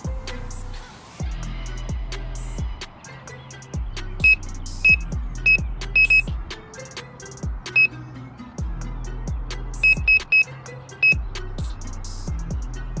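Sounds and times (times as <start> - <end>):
short high beeping notes: 4.2 - 6.3, 9.8 - 11.2.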